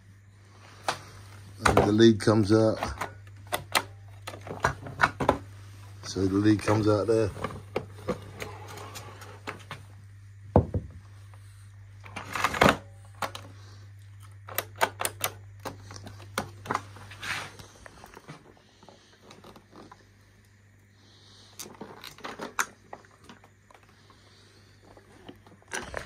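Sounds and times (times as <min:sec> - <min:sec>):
steady low hum: 0:00.0 - 0:26.0
rustling scrape: 0:16.8 - 0:18.4.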